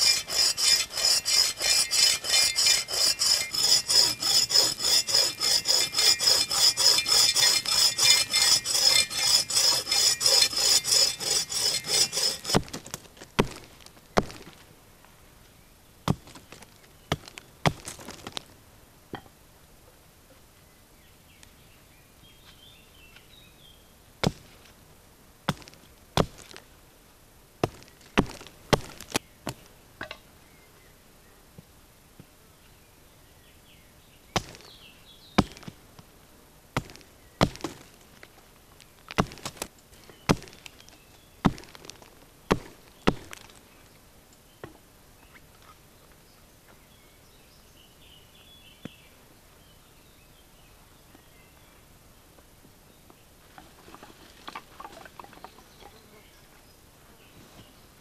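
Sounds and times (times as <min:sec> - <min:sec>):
hatchet chopping wood: 0:00.0 - 0:13.6, 0:34.4 - 0:34.7, 0:35.4 - 0:35.7, 0:36.8 - 0:37.8, 0:39.2 - 0:39.7, 0:40.3 - 0:40.6, 0:41.4 - 0:41.8, 0:42.5 - 0:43.4.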